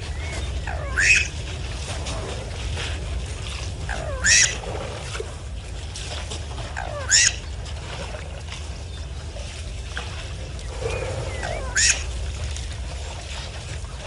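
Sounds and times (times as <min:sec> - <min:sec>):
bird harsh calls: 0:00.0 - 0:01.4, 0:03.9 - 0:04.6, 0:06.8 - 0:07.5, 0:11.2 - 0:12.1
steady low rumble: 0:00.0 - 0:14.0.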